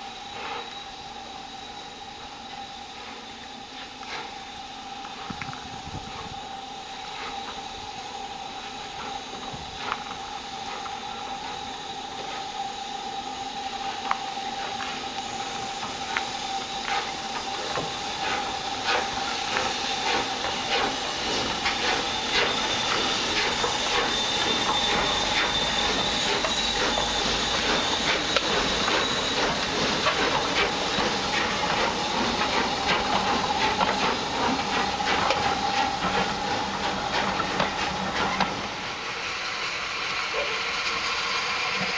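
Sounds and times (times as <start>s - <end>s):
steam locomotive hissing: 0.0s - 41.9s
wheels clicking and clanking: 13.8s - 38.8s.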